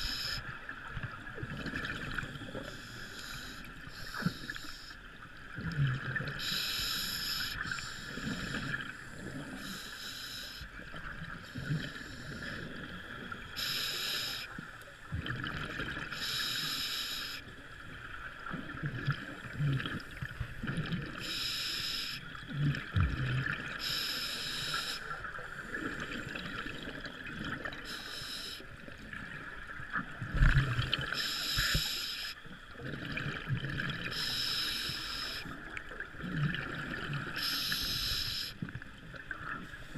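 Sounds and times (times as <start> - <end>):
steady hiss: 6.4 - 8.7, 13.6 - 14.6, 16.1 - 17.4, 21.2 - 22.3, 23.8 - 25.2, 27.9 - 28.6, 31.1 - 32.4, 34.1 - 35.6, 37.3 - 38.6
diver breathing through regulator: 6.4 - 8.8, 13.6 - 14.5, 34.1 - 35.5, 37.4 - 38.6.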